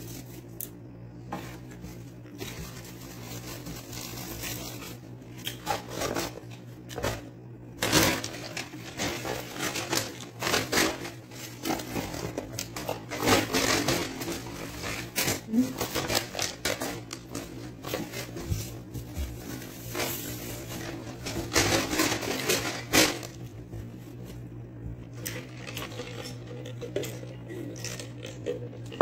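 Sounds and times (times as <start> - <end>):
steady low hum: 0.0 - 29.0
paper bag rustling: 1.3 - 24.3.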